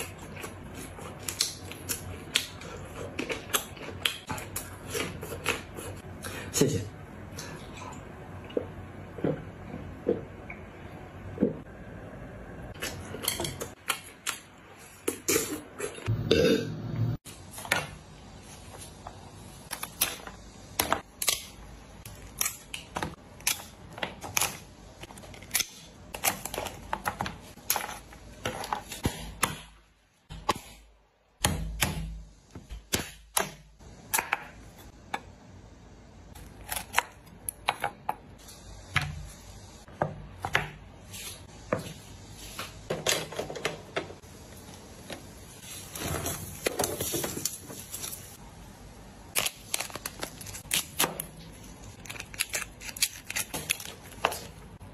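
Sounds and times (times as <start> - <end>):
shears cutting crab shell: 52.0 - 54.5.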